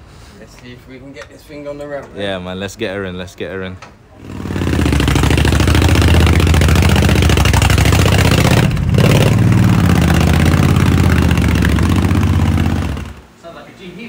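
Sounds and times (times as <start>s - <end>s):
motorcycle engine running loud: 4.2s - 13.2s.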